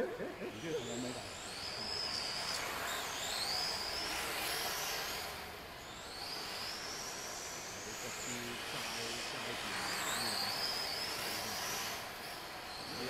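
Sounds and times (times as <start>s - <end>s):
electric motor whine: 0.0s - 13.0s.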